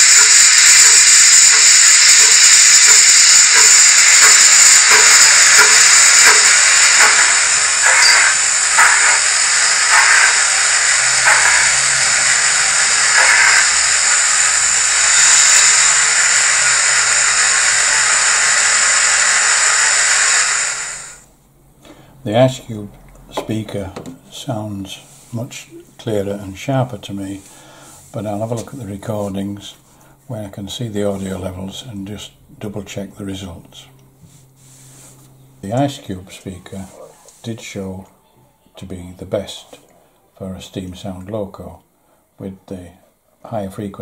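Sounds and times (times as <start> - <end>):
steam locomotive chuffs: 0.0 - 21.2
steam hiss: 0.0 - 21.3.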